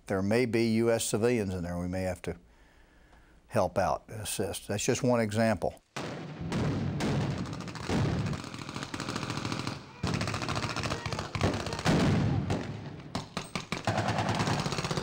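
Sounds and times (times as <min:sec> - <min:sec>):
rapid rifle fire: 0:06.0 - 0:15.0.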